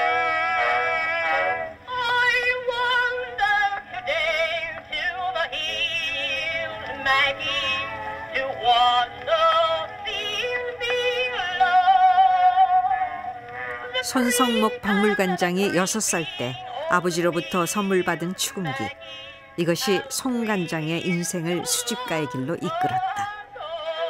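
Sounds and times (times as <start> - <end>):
singer with strong vibrato: 0.0 - 24.0.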